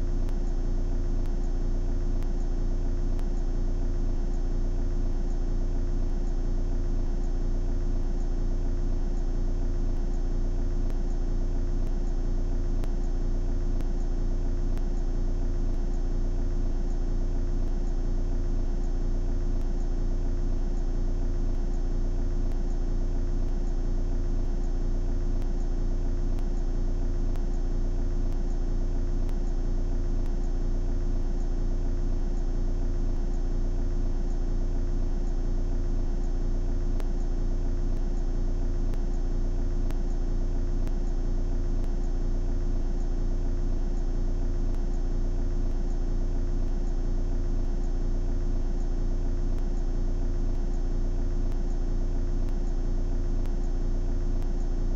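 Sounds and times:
constant hum tone: 0.0s - 54.9s
faint low pulsing: 0.0s - 54.9s.

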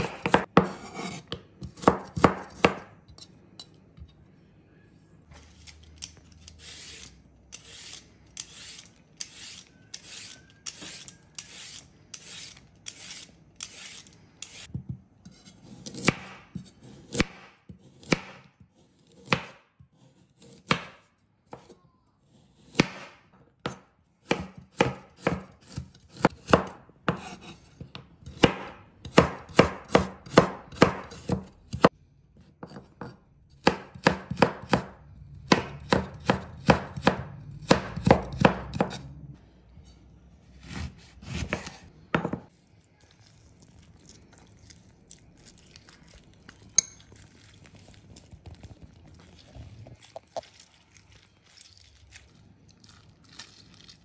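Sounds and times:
knife chopping on cutting board: 0.0s - 3.0s, 15.6s - 18.5s, 22.6s - 31.9s, 32.6s - 39.1s, 40.6s - 42.5s.

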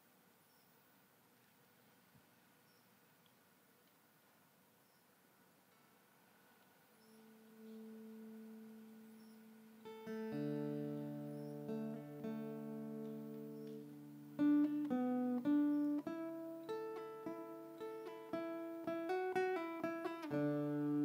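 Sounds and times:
plucked lute melody: 7.2s - 21.0s.

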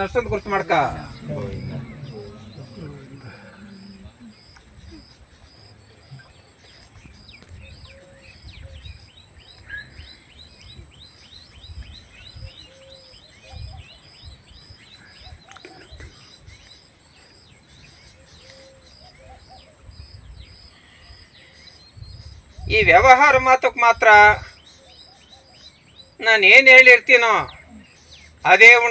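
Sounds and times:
low rumble: 0.0s - 4.4s
birds and insects chirping: 0.0s - 28.9s.

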